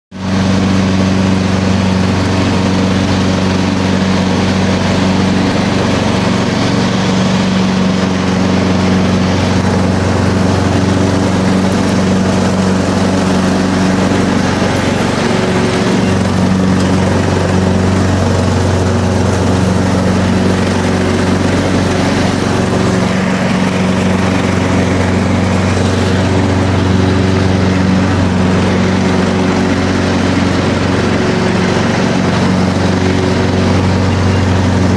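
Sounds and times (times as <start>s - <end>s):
lawn mower engine running: 0.1s - 34.9s.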